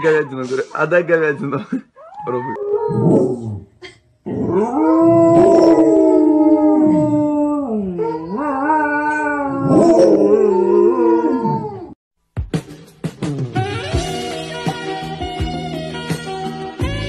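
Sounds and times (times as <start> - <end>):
dogs howling: 4.4 - 12.0.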